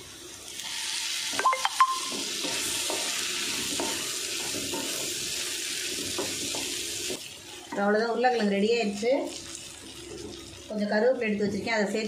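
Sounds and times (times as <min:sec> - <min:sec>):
potatoes sizzling in a pan: 0:00.0 - 0:12.0
spatula knocking on pan: 0:02.0 - 0:05.2, 0:05.9 - 0:06.8.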